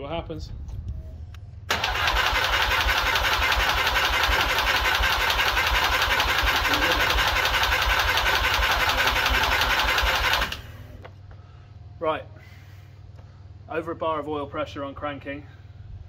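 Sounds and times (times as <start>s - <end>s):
starter motor cranking engine: 1.7s - 11.0s.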